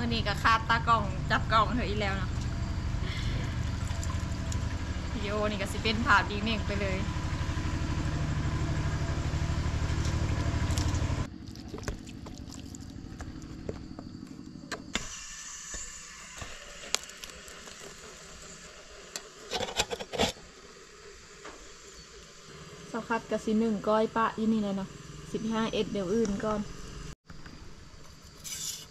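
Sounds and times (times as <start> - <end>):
motor humming: 1.2 - 23.8.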